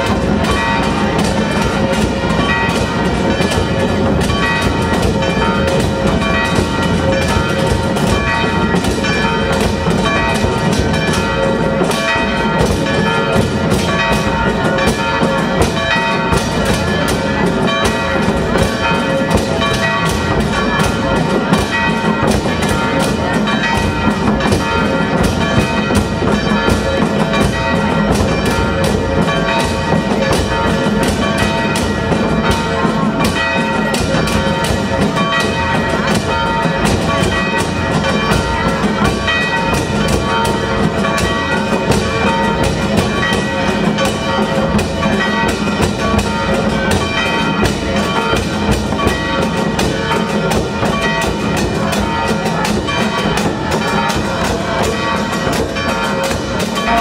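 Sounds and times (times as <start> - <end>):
bells ringing: 0.0 - 57.0
drums beating: 0.0 - 57.0.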